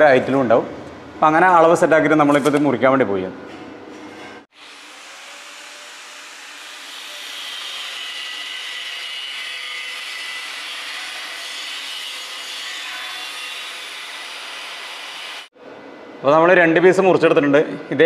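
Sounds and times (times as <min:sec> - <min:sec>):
angle grinder cutting steel pipe: 0:04.5 - 0:15.5.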